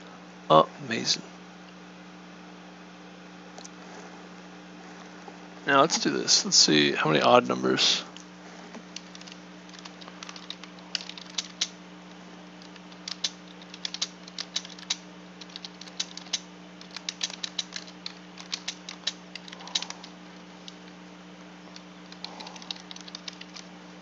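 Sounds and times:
steady low hum: 0:00.0 - 0:24.0
keyboard keystroke clicks: 0:09.0 - 0:11.8, 0:12.6 - 0:20.0, 0:21.7 - 0:23.7.

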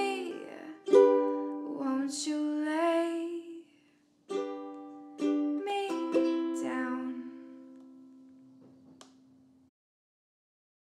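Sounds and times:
ukulele strumming chords: 0:00.0 - 0:02.1, 0:04.3 - 0:09.3.

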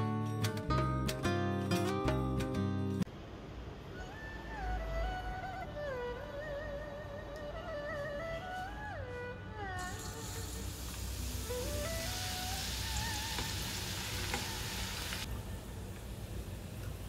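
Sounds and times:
background music: 0:00.0 - 0:03.1, 0:04.0 - 0:15.3
garlic sizzling in hot oil: 0:09.8 - 0:15.3.

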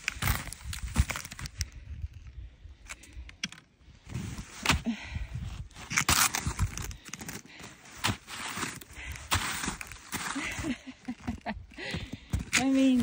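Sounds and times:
snowshoe footsteps crunching in snow: 0:07.6 - 0:13.0.

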